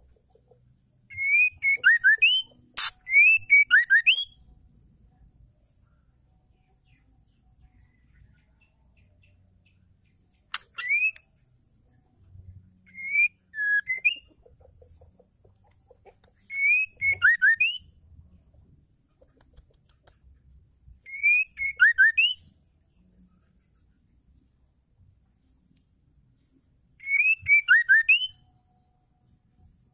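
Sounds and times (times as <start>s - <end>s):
bird singing whistled notes: 1.1s - 4.5s, 10.5s - 11.3s, 12.7s - 14.3s, 16.5s - 18.0s, 21.0s - 22.6s, 27.0s - 28.6s.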